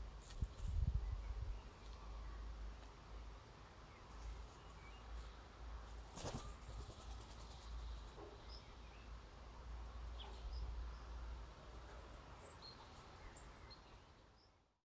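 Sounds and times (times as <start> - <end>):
wind rumbling on microphone: 0.0 - 1.8
distant small birds chirping: 0.0 - 14.7.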